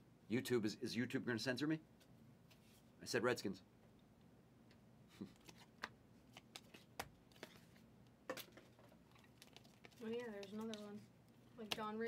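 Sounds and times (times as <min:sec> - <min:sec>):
cards being flipped through: 0:05.3 - 0:07.8, 0:08.4 - 0:11.0.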